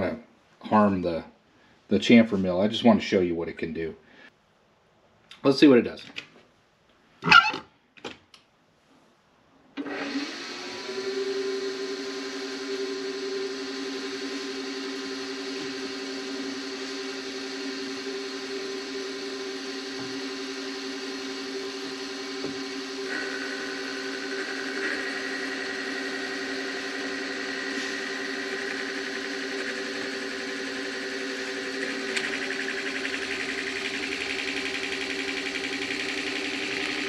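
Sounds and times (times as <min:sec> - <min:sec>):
milling machine motor whining: 0:09.8 - 0:37.0.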